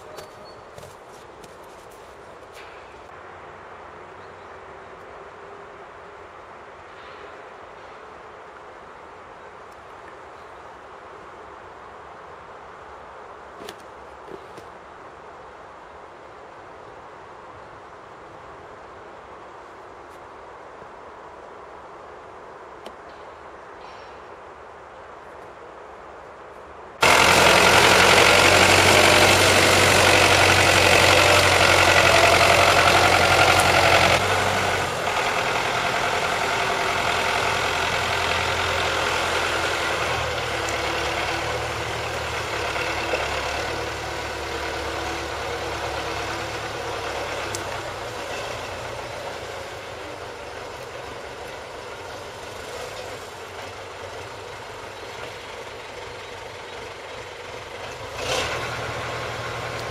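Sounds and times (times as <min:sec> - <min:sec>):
tractor engine running: 0:27.0 - 0:59.9.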